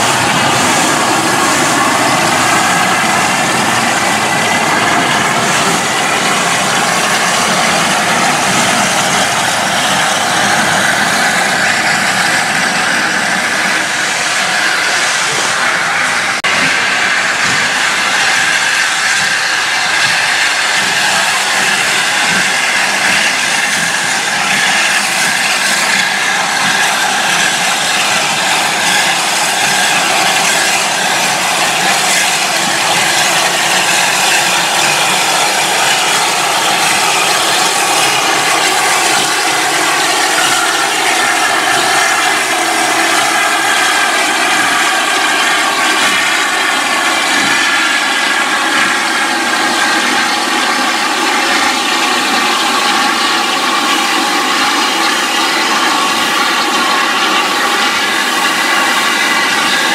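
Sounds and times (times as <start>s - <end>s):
steam train rushing: 0.0s - 59.9s.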